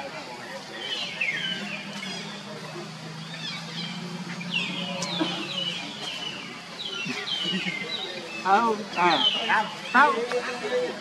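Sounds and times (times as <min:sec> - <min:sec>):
low steady hum: 0:01.0 - 0:07.8.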